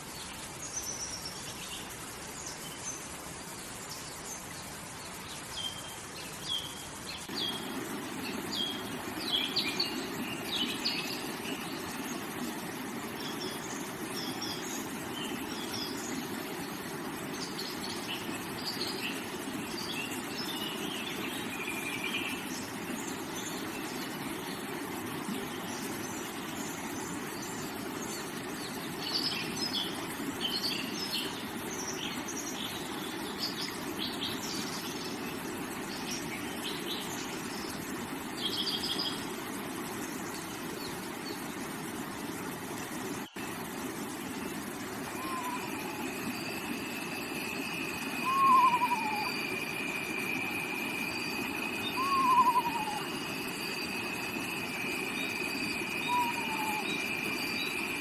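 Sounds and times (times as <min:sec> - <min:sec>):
stream rushing over rocks: 0:00.0 - 0:58.0
small birds chirping: 0:43.2 - 0:50.5, 0:51.2 - 0:57.9.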